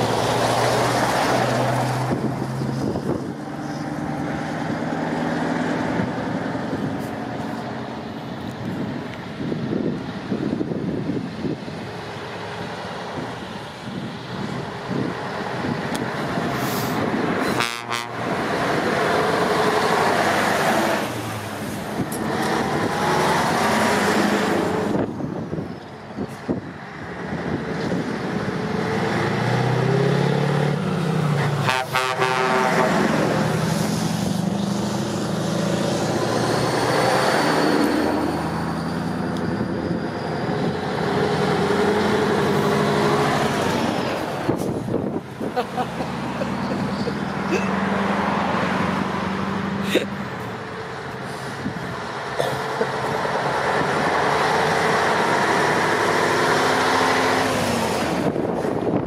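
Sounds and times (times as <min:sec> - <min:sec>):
diesel truck engines running: 0:00.0 - 0:59.0
air horns tooting: 0:17.4 - 0:18.3, 0:31.4 - 0:33.3.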